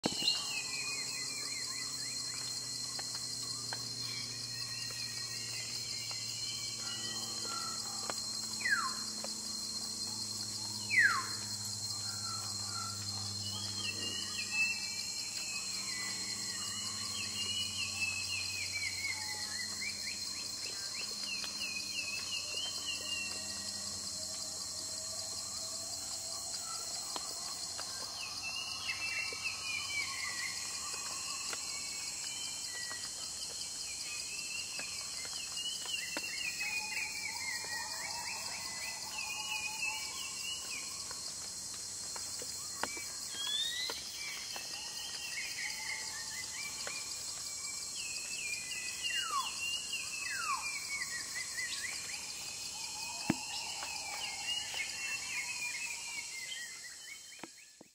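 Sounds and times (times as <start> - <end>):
high insect drone: 0.0 - 57.9.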